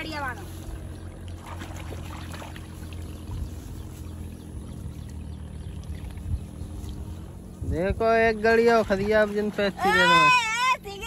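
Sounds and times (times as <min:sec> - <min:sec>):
low steady rumble: 0:00.0 - 0:11.0
water splashing and dripping: 0:01.1 - 0:03.5, 0:08.5 - 0:10.3.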